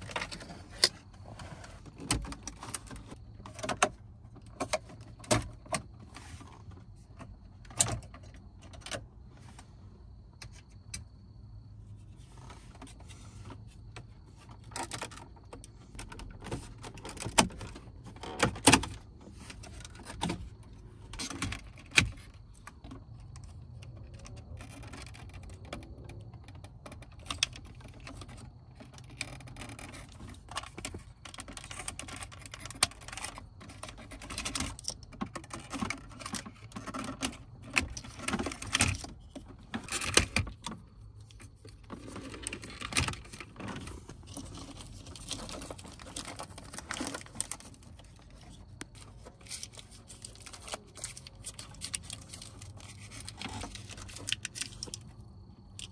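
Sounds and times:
plastic connectors clicking and rattling: 14.4 - 55.9.

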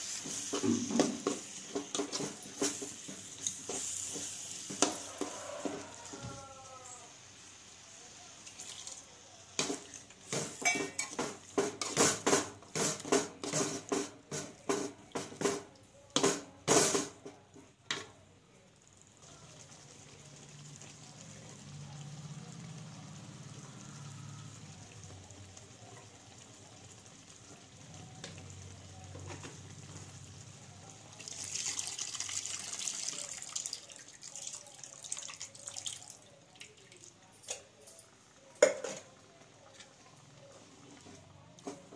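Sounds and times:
liquid splashing into pot: 31.2 - 37.6.

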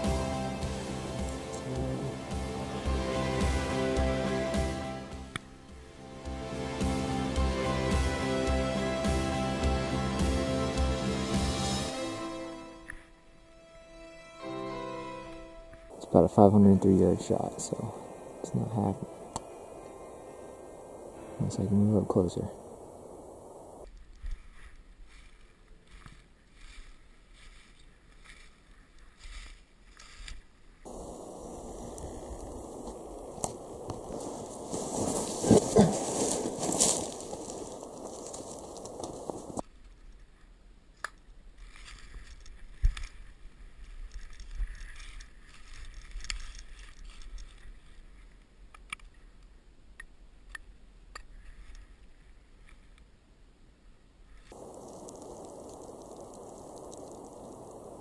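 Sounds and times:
steady hiss: 0.0 - 12.7, 15.7 - 23.9, 30.9 - 39.6, 54.3 - 58.0
footsteps crunching through frosty grass: 0.0 - 13.2, 14.4 - 39.6, 41.6 - 48.4, 54.4 - 58.0.

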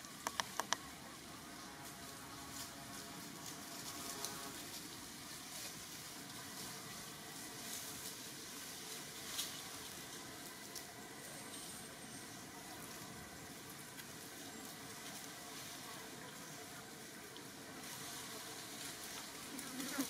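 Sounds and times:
dry leaves and twigs crackling: 0.0 - 20.0
steady hiss: 0.0 - 20.0
sharp ticks: 0.2 - 0.8.

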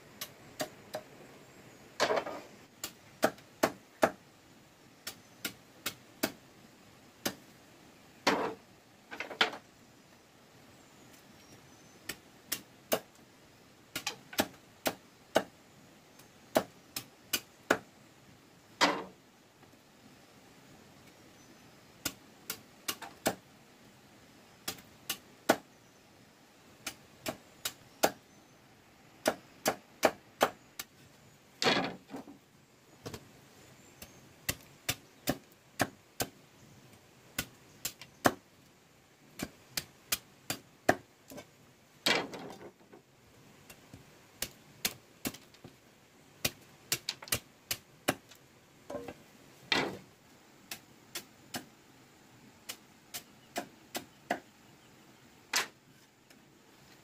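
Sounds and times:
machete chopping bamboo on wood: 0.2 - 1.0, 2.0 - 4.2, 5.0 - 6.4, 7.2 - 7.4, 12.0 - 13.2, 13.9 - 15.5, 16.5 - 17.9, 18.8 - 19.1, 22.0 - 23.4, 24.7 - 25.7, 26.8 - 28.2, 29.2 - 30.9, 34.0 - 36.4, 37.4 - 38.4, 39.3 - 41.5, 44.4 - 45.6, 46.4 - 50.0, 50.7 - 51.7, 52.6 - 54.5, 55.5 - 55.8.

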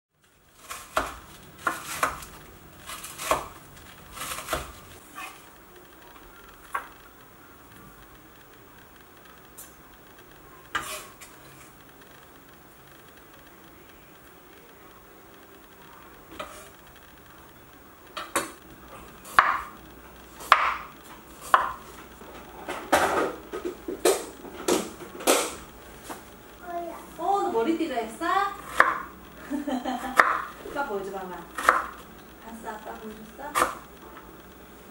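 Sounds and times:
knife slicing carrot on board: 0.6 - 2.3, 2.9 - 3.5, 20.4 - 20.8, 21.4 - 21.8, 28.6 - 29.1, 30.2 - 30.4, 31.6 - 31.9.

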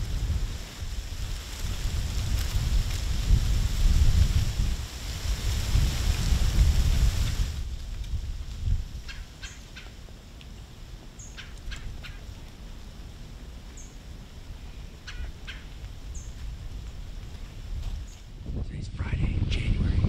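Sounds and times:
low wind rumble: 0.0 - 20.0
short sharp bird calls: 9.1 - 9.9, 11.2 - 12.3, 15.0 - 16.4.

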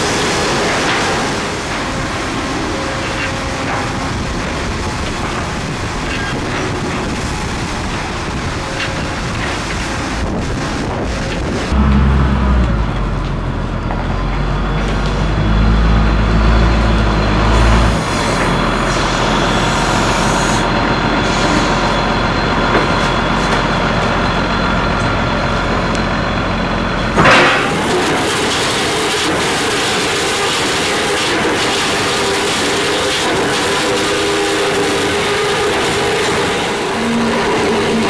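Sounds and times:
diesel engine running under load: 0.0 - 38.0
sawmill machinery noise: 0.0 - 38.0
sudden loud burst: 11.6 - 13.6.

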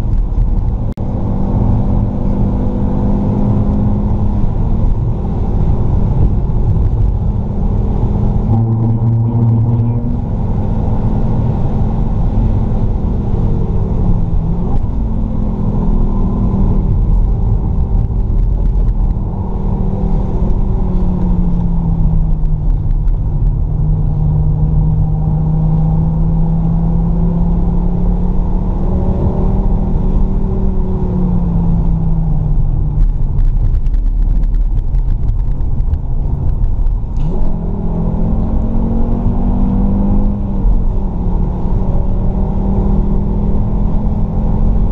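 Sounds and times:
car engine revving at speed: 0.0 - 44.9
road and tyre noise: 0.0 - 44.9.

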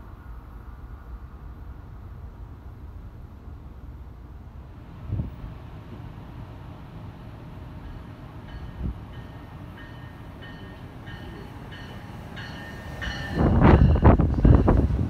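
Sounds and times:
train wheels rumbling and clattering: 0.0 - 15.0
train bell dinging: 7.8 - 15.0.

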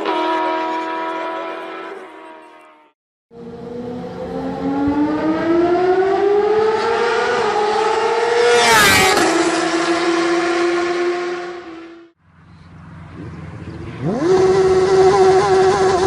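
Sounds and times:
motorcycle engine accelerating: 3.3 - 16.0.

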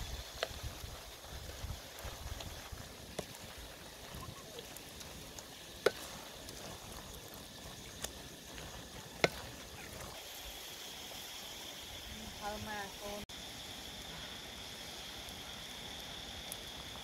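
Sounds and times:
low sizzle of frying: 0.0 - 17.0
wooden spatula stirring in wok: 0.3 - 10.2.

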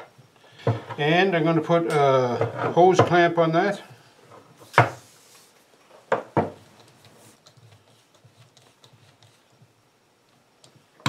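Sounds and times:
tools knocking on workbench: 6.1 - 6.6.

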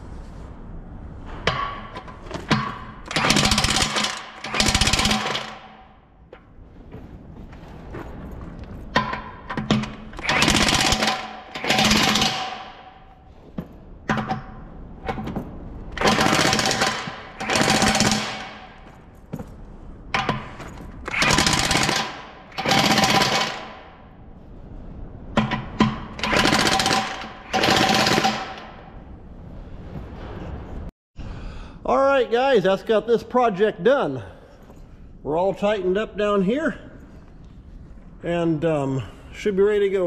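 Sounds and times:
impact wrench hammering: 1.4 - 6.0, 8.9 - 13.1, 16.0 - 19.0, 20.1 - 24.0, 25.4 - 28.9.

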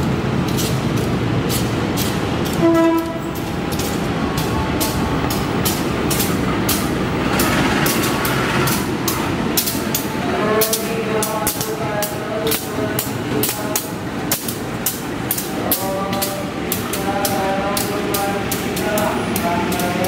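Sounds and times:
locomotive engine rumbling: 0.0 - 20.0
wheels clicking over rail joints: 0.0 - 20.0
announcement voice: 10.2 - 14.0, 15.6 - 20.0.

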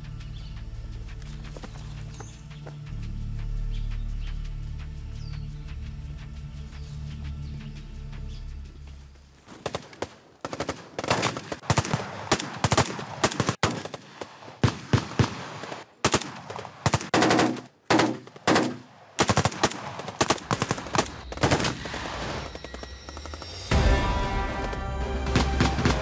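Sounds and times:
automatic rifle fire: 10.5 - 22.7.

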